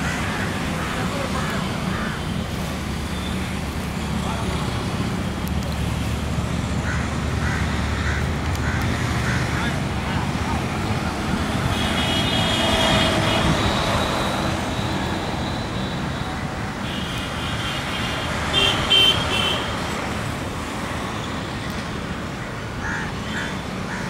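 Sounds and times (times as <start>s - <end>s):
road traffic noise: 0.0s - 24.0s
vehicle horns: 11.4s - 19.8s.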